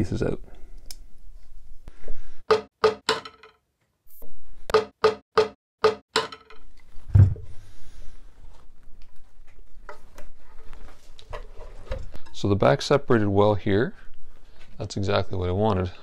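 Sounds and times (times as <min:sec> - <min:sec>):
mallet knocking wood: 0:02.5 - 0:03.5, 0:04.8 - 0:06.5.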